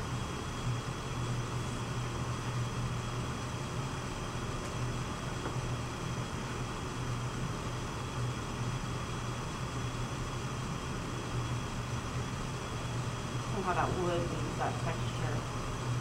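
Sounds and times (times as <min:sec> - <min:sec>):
potter's wheel humming: 0:00.0 - 0:16.0.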